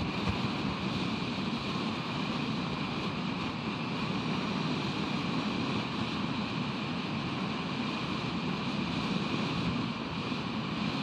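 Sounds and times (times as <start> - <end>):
ocean surf: 0.0 - 5.0
wind: 0.0 - 11.0.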